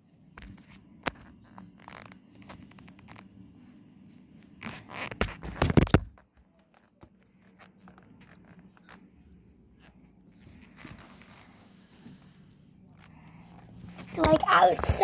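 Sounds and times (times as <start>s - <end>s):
curtain fabric rustling: 4.6s - 15.0s.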